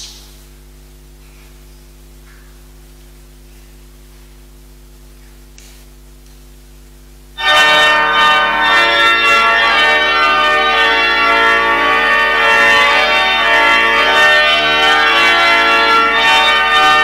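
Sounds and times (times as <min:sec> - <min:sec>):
organ playing: 0:07.4 - 0:17.0.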